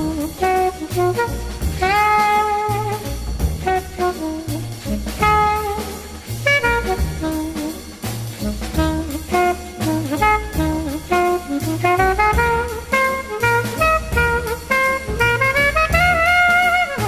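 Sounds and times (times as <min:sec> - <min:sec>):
drum kit beat: 0:00.0 - 0:17.0
horn playing jazz melody: 0:00.0 - 0:17.0.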